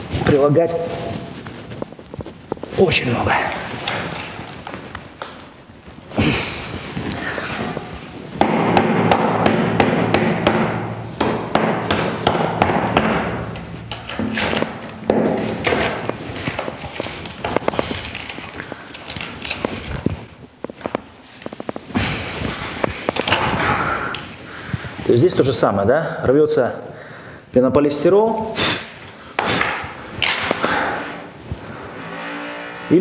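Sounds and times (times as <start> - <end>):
plaster crunching and cracking: 3.4 - 5.6, 11.2 - 21.8.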